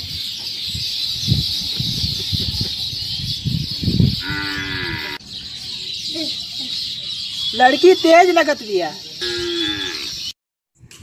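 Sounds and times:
held moo: 4.2 - 5.2, 9.2 - 10.1.

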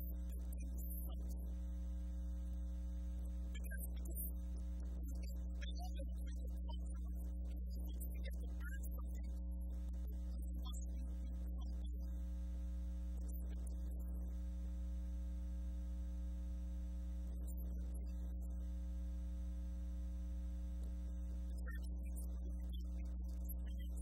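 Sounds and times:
electrical mains hum: 0.0 - 6.5, 9.4 - 24.0.

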